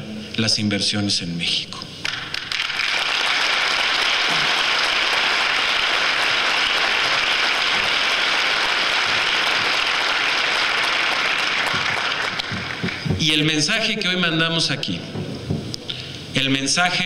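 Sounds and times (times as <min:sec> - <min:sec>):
audience applauding: 0:02.0 - 0:13.5.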